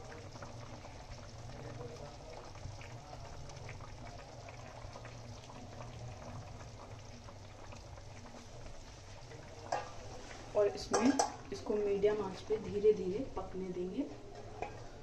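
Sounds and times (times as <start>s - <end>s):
gravy simmering and bubbling: 0.0s - 15.0s.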